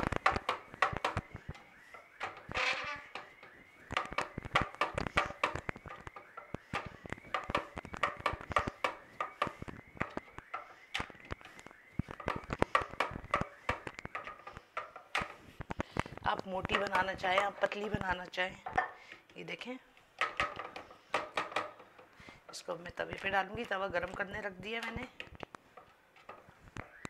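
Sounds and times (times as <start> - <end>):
rolling pin knocking on wooden board: 2.2 - 11.2, 12.0 - 15.4, 20.2 - 22.0.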